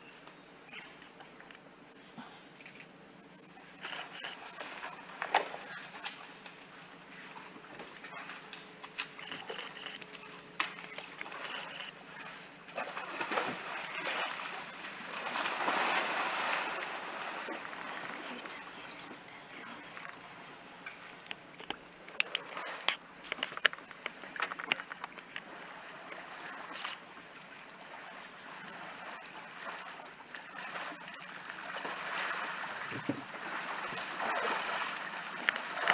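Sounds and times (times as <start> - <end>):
elephant splashing in water: 11.2 - 18.5, 25.5 - 35.9.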